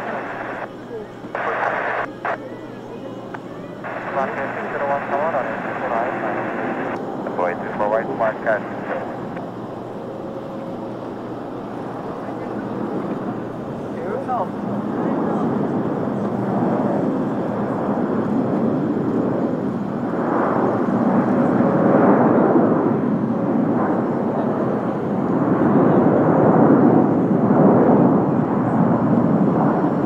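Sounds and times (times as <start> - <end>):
jet engines roaring: 0.0 - 30.0.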